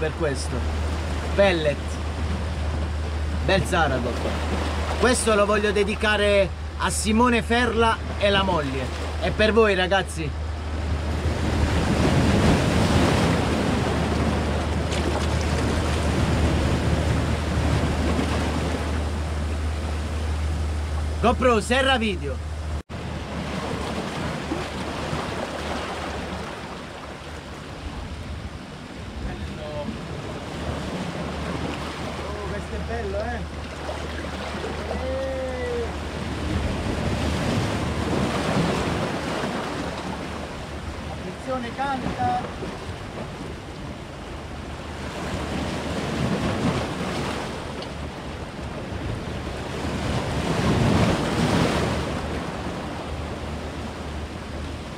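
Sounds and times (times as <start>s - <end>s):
waves breaking over rocks: 0.0s - 9.4s, 10.3s - 21.2s, 22.9s - 54.9s
wind buffeting microphone: 10.3s - 21.2s, 33.2s - 54.9s.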